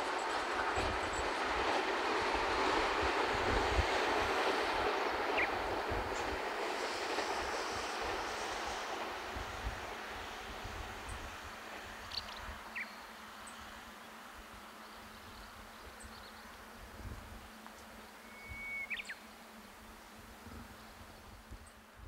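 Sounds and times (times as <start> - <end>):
electric train running: 0.0 - 12.7
wind rumble on microphone: 16.8 - 17.5.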